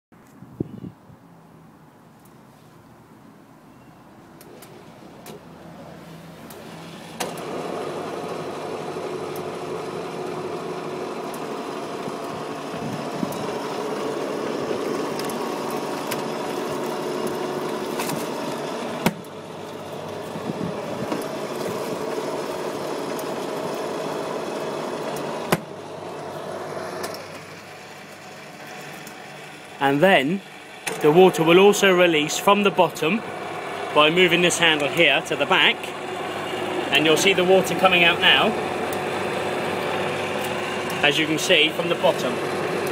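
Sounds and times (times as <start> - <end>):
washing machine motor humming: 6.5 - 42.9.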